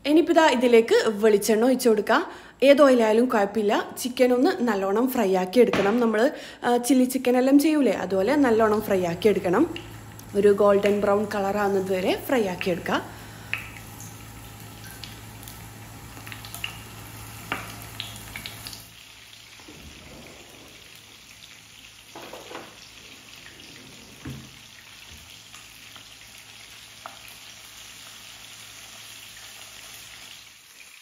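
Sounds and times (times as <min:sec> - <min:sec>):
chicken sizzling in oil: 0:09.6 - 0:23.6, 0:24.5 - 0:31.0.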